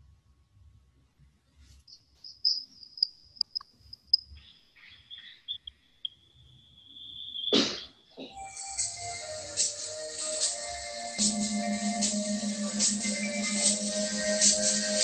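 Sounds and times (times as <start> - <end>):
chattering ticks: 2.3 - 4.4.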